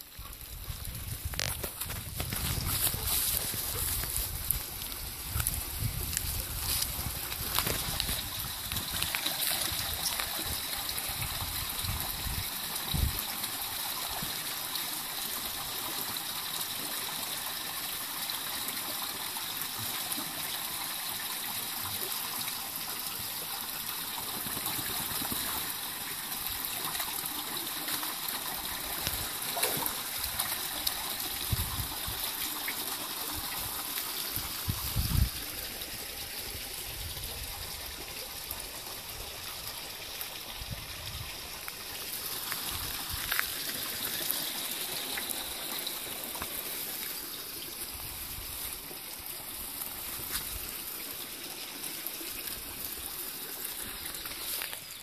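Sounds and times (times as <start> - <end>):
shallow water trickling: 17.4 - 55.0.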